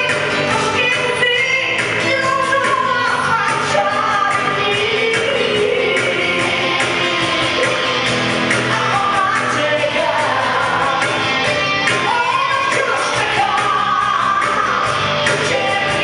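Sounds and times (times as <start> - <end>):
acoustic guitar: 0.0 - 16.0
electric bass: 0.0 - 16.0
percussion beat: 0.0 - 16.0
woman singing: 0.0 - 16.0.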